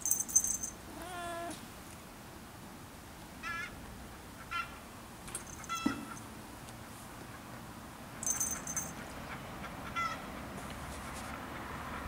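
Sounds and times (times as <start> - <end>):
cat meowing: 0.9 - 1.6.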